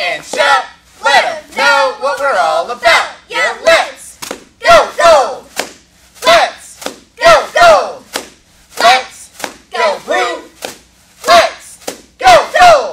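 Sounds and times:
cheerleaders chanting in unison: 0.0 - 5.6, 6.2 - 8.2, 8.8 - 12.9
sharp claps: 4.2 - 4.5, 5.5 - 7.1, 8.1 - 9.7, 10.6 - 12.2.

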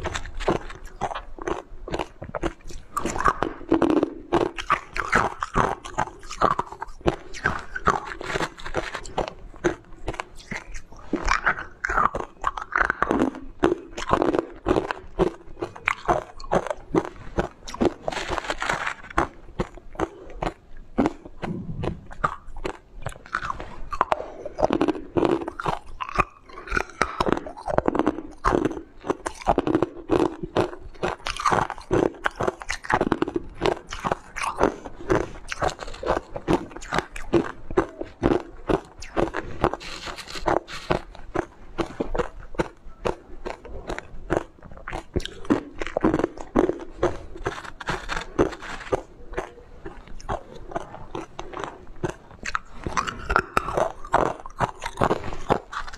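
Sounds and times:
ice being crunched and chewed: 0.0 - 55.9.

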